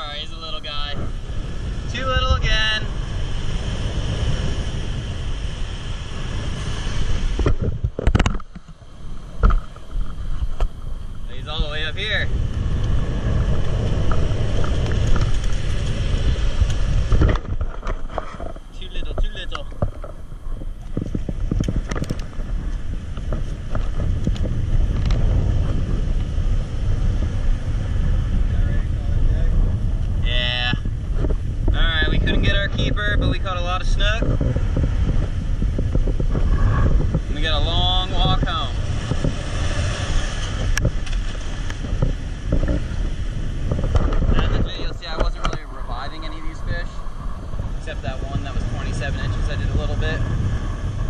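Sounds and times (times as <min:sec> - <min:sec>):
surf breaking on beach: 0:00.0 - 0:51.0
wind buffeting microphone: 0:00.0 - 0:51.0
knocks and rubs on microphone: 0:07.3 - 0:10.9, 0:13.5 - 0:26.3, 0:30.9 - 0:45.8.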